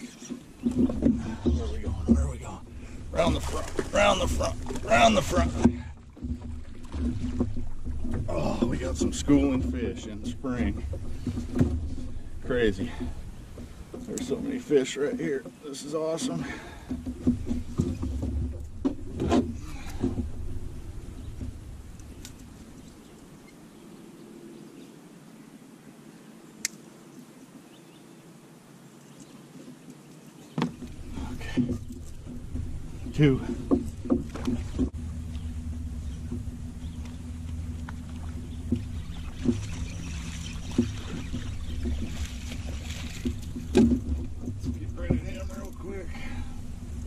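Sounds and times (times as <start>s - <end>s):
steady low hum: 0.0s - 15.4s, 16.4s - 27.7s, 30.6s - 47.0s
knocks on metal boat: 42.9s - 45.4s.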